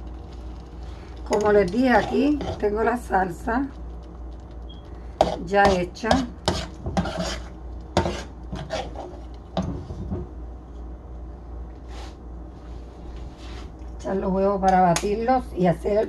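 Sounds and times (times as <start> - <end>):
utensils scraping cookware: 1.3 - 2.8, 5.2 - 9.2.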